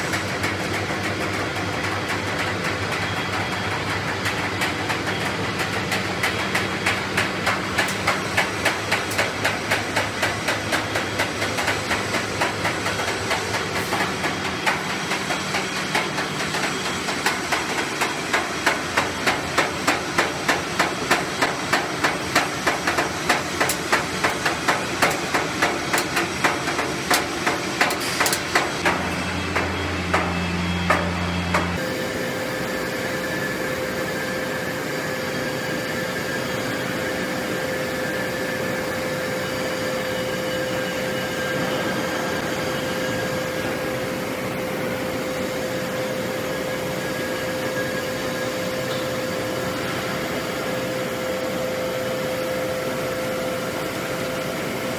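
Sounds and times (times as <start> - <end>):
power hammer striking steel: 0.0 - 32.0
steady industrial hum: 0.0 - 54.9.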